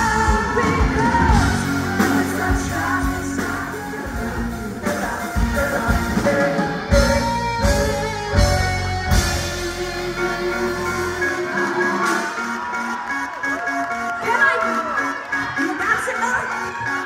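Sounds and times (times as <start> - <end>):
person singing: 0.0 - 8.5
rock band playing: 0.0 - 17.0.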